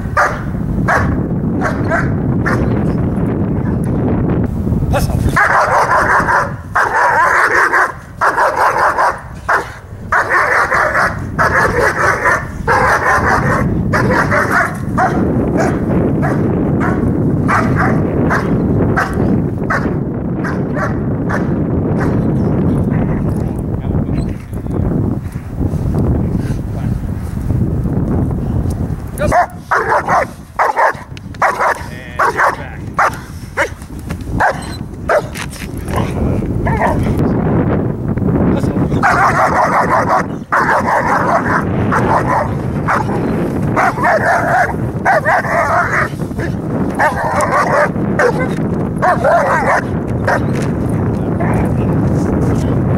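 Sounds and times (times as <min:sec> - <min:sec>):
dog barking: 0:00.2 - 0:02.8, 0:05.4 - 0:22.2, 0:29.3 - 0:33.8, 0:34.4 - 0:35.3, 0:36.0 - 0:37.1, 0:39.0 - 0:50.5.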